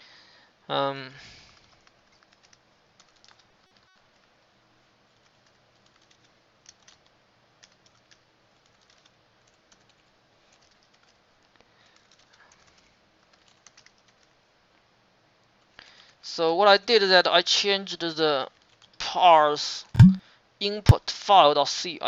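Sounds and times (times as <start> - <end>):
keyboard keys clicking: 5.9 - 7.0, 20.0 - 20.2.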